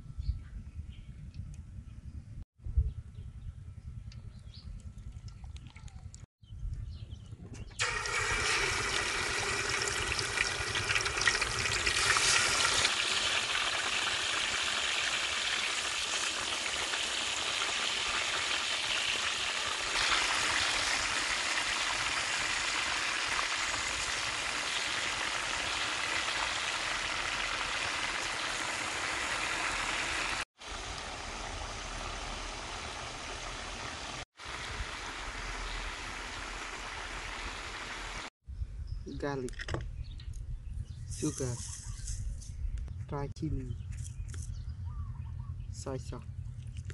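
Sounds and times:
oil crackling: 0:07.8 - 0:33.8
oil sizzling in a wok: 0:07.8 - 0:38.3.

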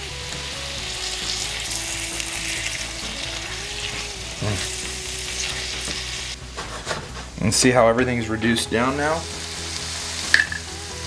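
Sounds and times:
sauce sizzling in a frying pan: 0:00.0 - 0:06.4, 0:08.8 - 0:11.0.

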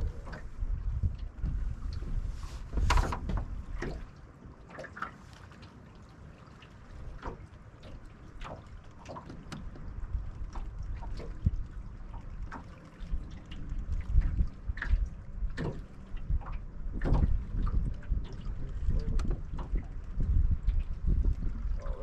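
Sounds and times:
wind gusting on microphone: 0:00.0 - 0:04.1, 0:13.0 - 0:22.0
water lapping against hull: 0:00.0 - 0:22.0
small ticks and splashes: 0:03.8 - 0:22.0.

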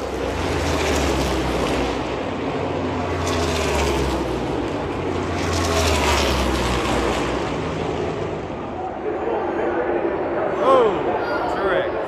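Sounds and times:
car passing by: 0:00.0 - 0:08.9
race car engines: 0:00.0 - 0:12.0.

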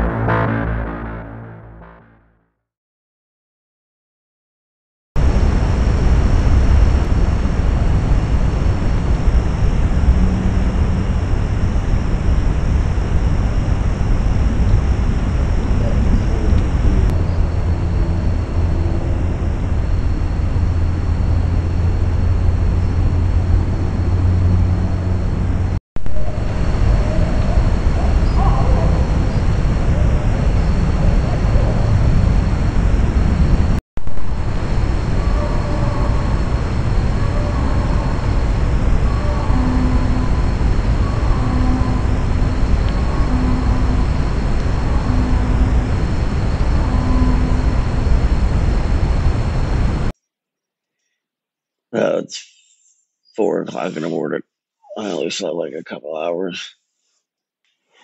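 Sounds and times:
low rumble and hiss: 0:05.2 - 0:33.5, 0:34.1 - 0:50.1, 0:53.4 - 0:56.7
high continuous trill: 0:05.2 - 0:50.1.

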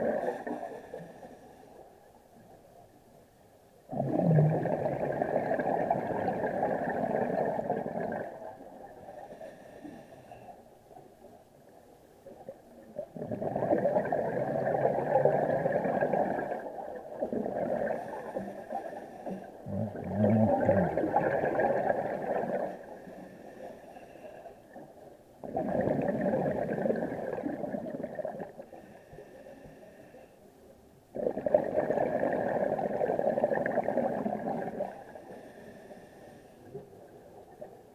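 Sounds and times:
gurgling exhaled bubbles: 0:03.9 - 0:08.8, 0:13.0 - 0:18.9, 0:19.6 - 0:22.8, 0:25.4 - 0:28.7, 0:31.2 - 0:35.1
diver inhaling through regulator: 0:09.2 - 0:10.6, 0:22.5 - 0:24.6, 0:28.6 - 0:30.4, 0:34.8 - 0:36.8.

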